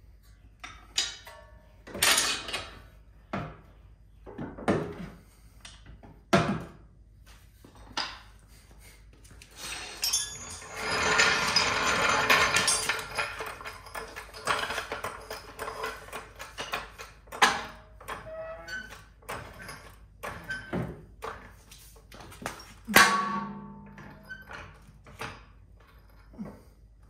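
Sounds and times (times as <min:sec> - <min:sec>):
continuous metal clattering: 0:09.7 - 0:26.8
metal clanks and knocks: 0:10.0 - 0:26.4.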